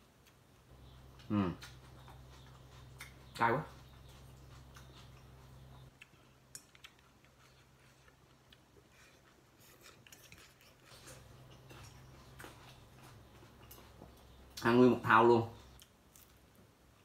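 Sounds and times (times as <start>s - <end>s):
noodles being eaten: 4.4s - 12.7s.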